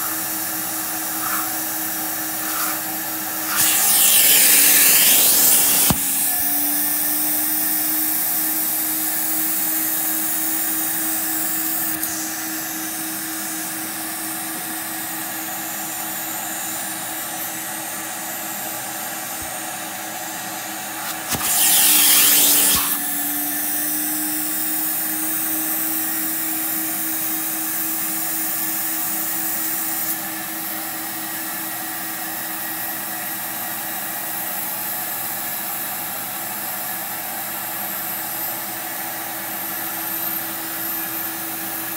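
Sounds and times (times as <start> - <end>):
vacuum motor humming: 0.0 - 30.6
water being sucked up: 0.9 - 6.2
loud hissing rush: 2.3 - 6.0.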